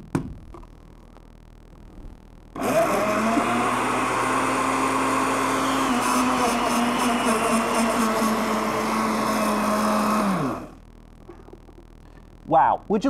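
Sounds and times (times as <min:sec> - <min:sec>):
blender motor running: 0:02.6 - 0:10.8.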